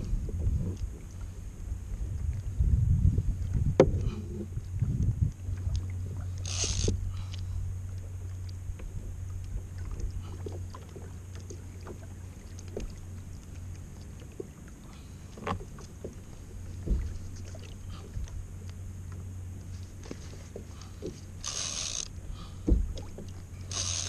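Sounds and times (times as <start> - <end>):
steady low hum: 0.0 - 24.0
water sloshing against plastic hull: 2.0 - 24.0
light knocks and clicks: 22.6 - 23.4.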